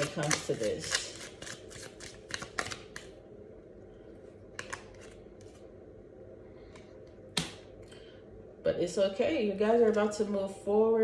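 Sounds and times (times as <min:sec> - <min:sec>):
cards being shuffled: 0:00.0 - 0:03.1, 0:04.6 - 0:05.6.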